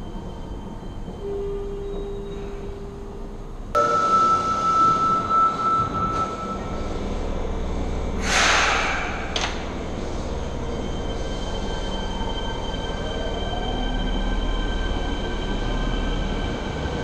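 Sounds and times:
steady high tone: 0:00.0 - 0:08.1
train low rumble: 0:00.0 - 0:17.0
hissing air burst: 0:08.2 - 0:09.4.

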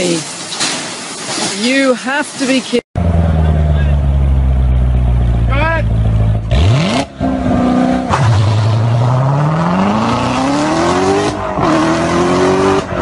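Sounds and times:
sports car engine accelerating: 0:03.0 - 0:13.0.

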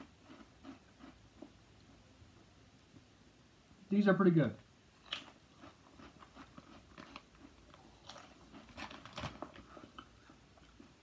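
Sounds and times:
person chewing potato chips: 0:00.0 - 0:02.0, 0:05.0 - 0:11.0.

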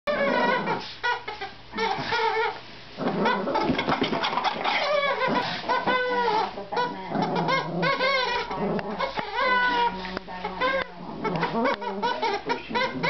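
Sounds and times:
rubber chicken toy squawking: 0:00.1 - 0:02.6, 0:03.2 - 0:13.0.

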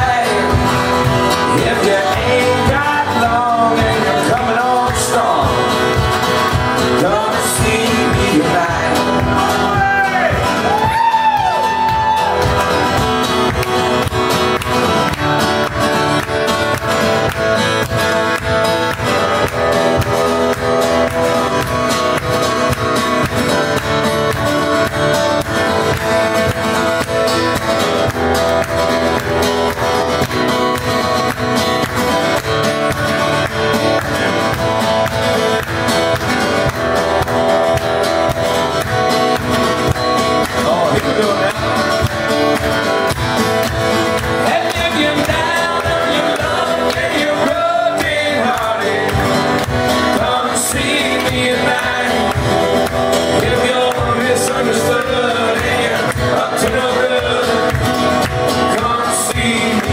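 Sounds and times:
man singing: 0:00.0 - 0:11.7, 0:40.5 - 0:42.2, 0:44.3 - 0:59.9
acoustic guitar strumming: 0:00.0 - 0:59.9.

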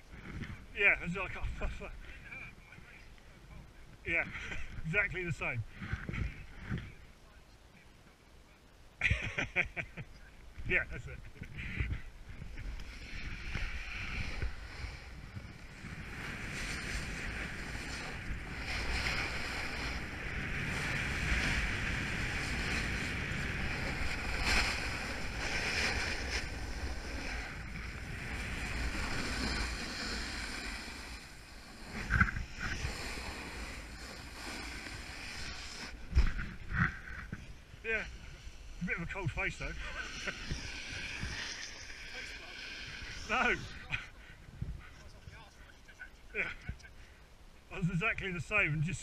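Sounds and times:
snowboard carving over snow: 0:00.0 - 0:03.0, 0:04.0 - 0:07.0, 0:10.6 - 0:45.5
wind buffeting microphone: 0:03.7 - 0:07.0, 0:42.8 - 0:45.5.

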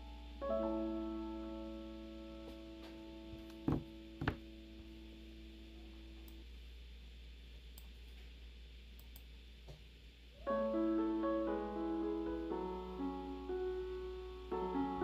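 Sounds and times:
piano music: 0:00.0 - 0:06.1, 0:10.4 - 0:15.0.

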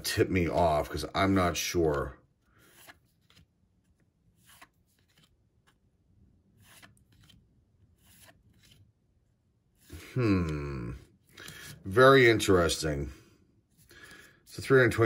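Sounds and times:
cards swishing: 0:01.7 - 0:05.9, 0:06.5 - 0:08.9.

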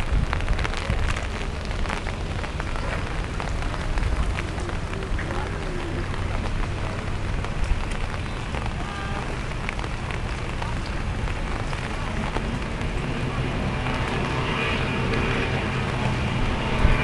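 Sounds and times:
heavy rain hissing: 0:00.0 - 0:17.0
distant powerboat engines: 0:00.7 - 0:17.0.

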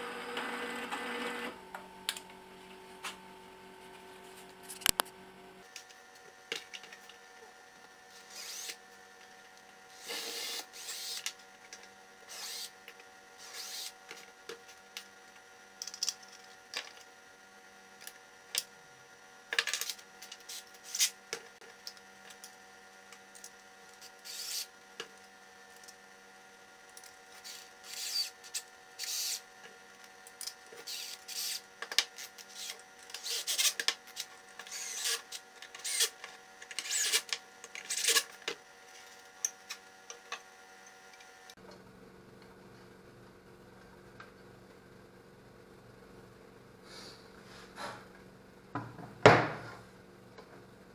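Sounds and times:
cordless drill driving screws: 0:08.3 - 0:08.8, 0:10.0 - 0:11.3, 0:12.3 - 0:12.7, 0:13.4 - 0:14.0, 0:24.2 - 0:24.7, 0:27.4 - 0:28.3, 0:29.0 - 0:29.4, 0:30.8 - 0:31.6, 0:34.7 - 0:36.2
clicks and rubbing of parts: 0:30.0 - 0:40.4.

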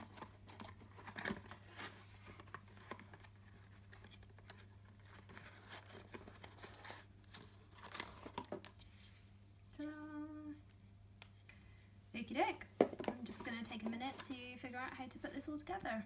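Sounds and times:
cardboard box rustling: 0:00.0 - 0:08.8, 0:12.8 - 0:15.0
steady low hum: 0:08.4 - 0:16.0.

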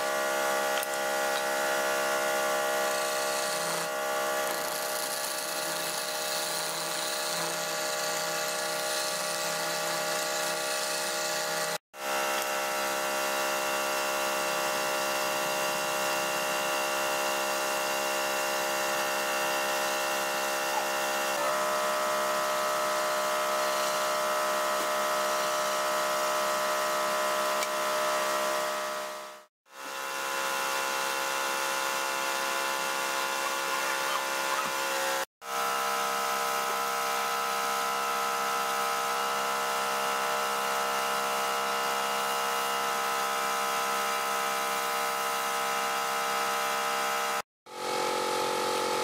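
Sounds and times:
lathe motor whining hum: 0:00.0 - 0:29.3
chisel scraping spinning wood: 0:02.5 - 0:11.8.

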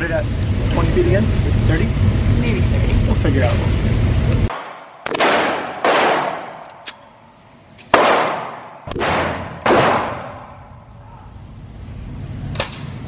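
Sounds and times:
pistol shots echoing: 0:04.5 - 0:07.0, 0:07.9 - 0:10.6.

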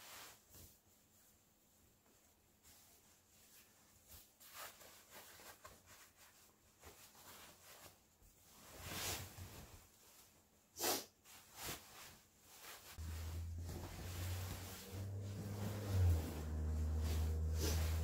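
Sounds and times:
duvet cover rustling: 0:00.0 - 0:18.0
person sniffing: 0:10.8 - 0:11.2.

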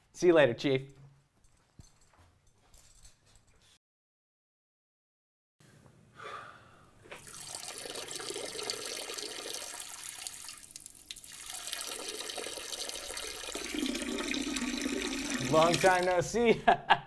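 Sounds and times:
urine splashing into urinal: 0:07.1 - 0:16.2.

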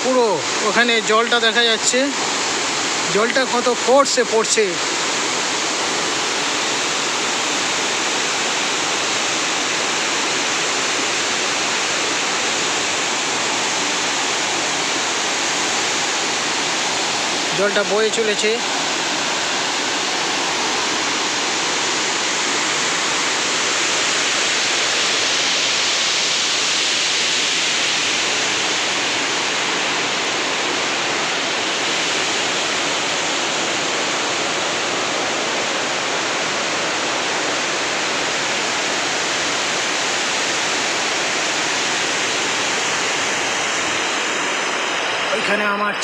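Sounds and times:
stream cascading over rocks: 0:00.0 - 0:46.0
waterfall rushing: 0:00.0 - 0:46.0.

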